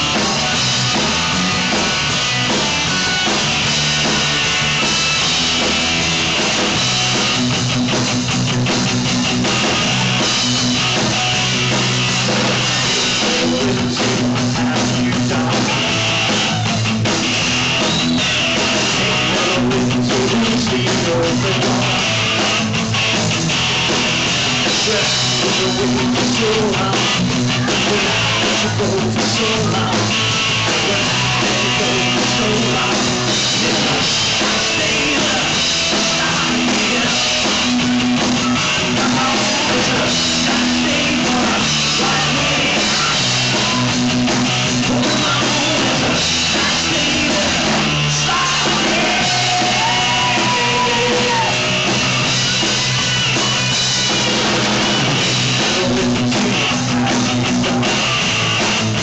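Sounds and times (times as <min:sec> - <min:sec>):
drum kit: 0:00.0 - 0:59.0
electric guitar: 0:00.0 - 0:59.0
person singing: 0:12.3 - 0:16.9, 0:18.2 - 0:22.5, 0:24.6 - 0:52.9, 0:55.4 - 0:58.4.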